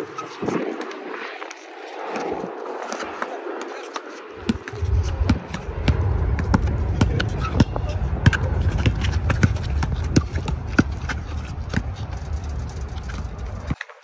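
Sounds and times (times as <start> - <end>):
basketball bouncing on concrete: 4.4 - 13.8
low rumble: 4.4 - 13.8.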